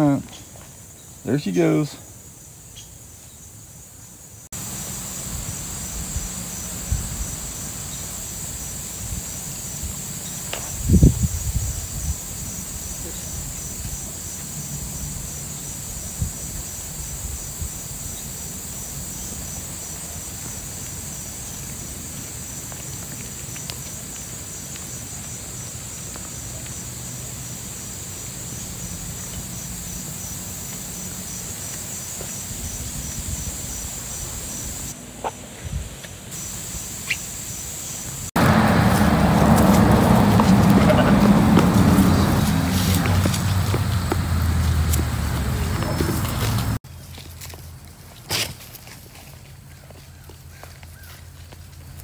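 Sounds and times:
insects trilling: 0:00.0 - 0:46.8
outdoor noise: 0:00.0 - 0:52.0
low rumble: 0:38.4 - 0:46.8.

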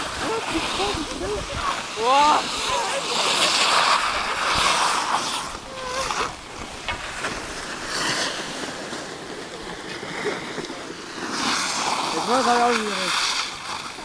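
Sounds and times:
skis swishing over snow: 0:00.0 - 0:14.0.

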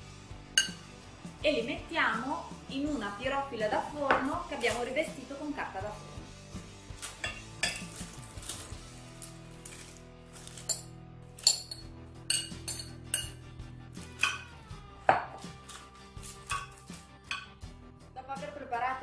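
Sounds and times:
soft background music: 0:00.0 - 0:19.0
utensil knocking glass bowl: 0:00.6 - 0:00.8, 0:15.1 - 0:15.4.

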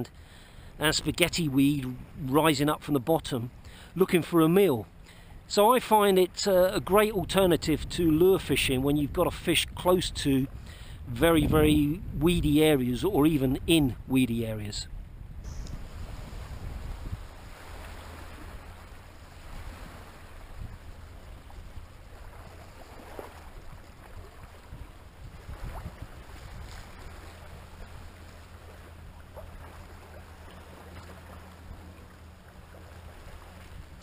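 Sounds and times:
wind rumble on microphone: 0:06.7 - 0:34.0
waves lapping against rocks: 0:15.7 - 0:34.0.

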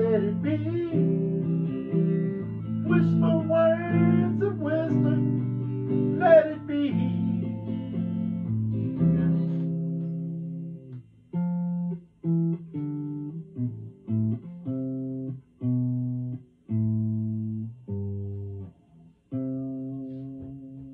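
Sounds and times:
clean electric guitar: 0:00.0 - 0:20.9.

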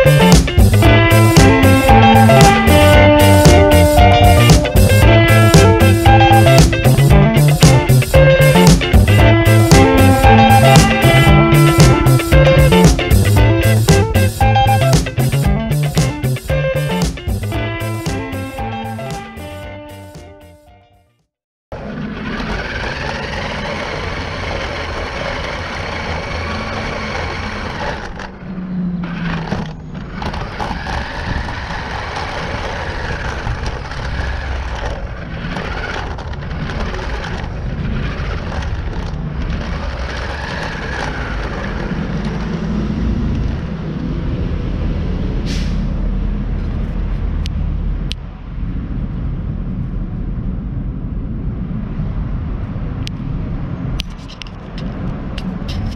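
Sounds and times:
tyres rumbling on concrete: 0:00.0 - 0:20.4, 0:21.7 - 0:43.9
motor and gear whine: 0:21.7 - 0:43.7.

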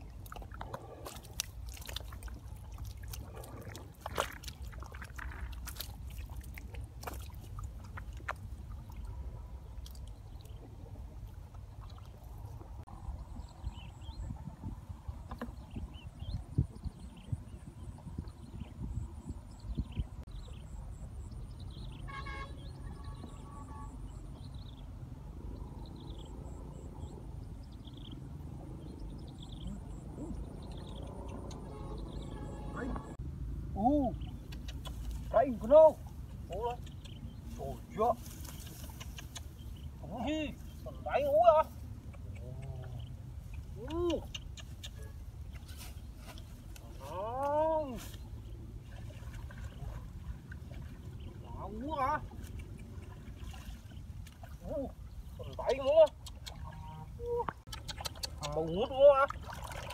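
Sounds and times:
fish splashing in muddy water: 0:00.0 - 0:12.8, 0:48.2 - 0:51.5, 0:52.2 - 0:59.9
wind on microphone: 0:12.6 - 0:20.4.

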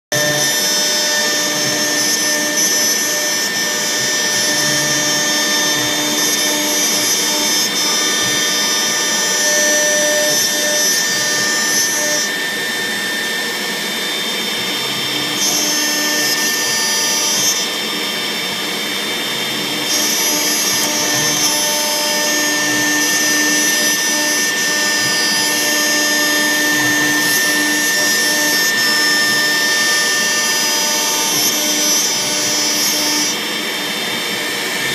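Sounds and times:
machine whine: 0:00.1 - 0:34.9.

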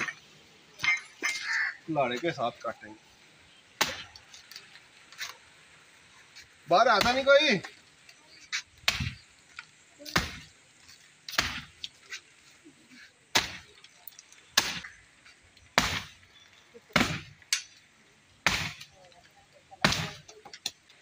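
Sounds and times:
axe chopping tree trunk: 0:03.8 - 0:04.2, 0:06.9 - 0:07.4, 0:08.8 - 0:09.2, 0:10.1 - 0:10.5, 0:11.3 - 0:11.8, 0:13.3 - 0:13.7, 0:14.5 - 0:15.0, 0:15.8 - 0:16.2, 0:16.9 - 0:17.4, 0:18.4 - 0:18.9, 0:19.8 - 0:20.8.

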